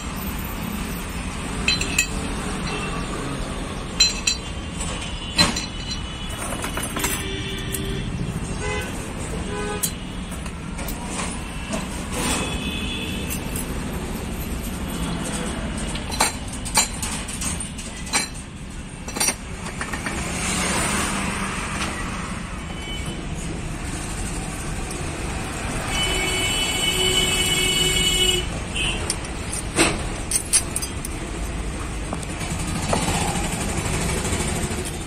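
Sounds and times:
metal gear parts clinking: 0.0s - 8.1s, 13.2s - 14.1s, 15.4s - 20.2s, 28.8s - 33.4s, 34.4s - 35.0s
traffic noise: 0.0s - 35.0s
vehicle horn: 7.2s - 10.2s, 25.8s - 29.1s.

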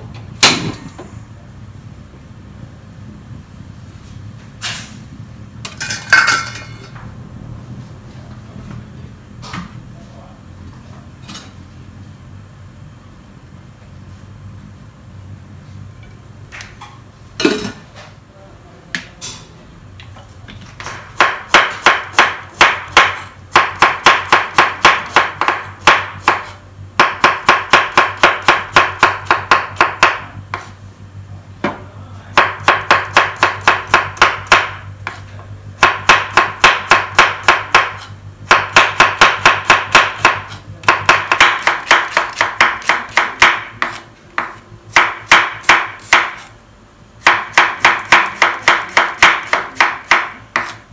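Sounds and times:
knife chopping on wooden board: 20.8s - 30.8s, 32.4s - 35.2s, 35.8s - 46.5s, 47.2s - 50.8s.

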